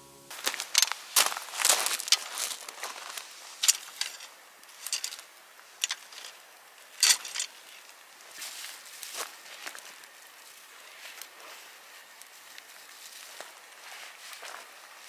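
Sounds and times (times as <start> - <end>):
boots shifting on stones: 0.3 - 9.8
steel grill stand clinking: 3.6 - 5.2, 5.8 - 6.4, 7.0 - 7.7.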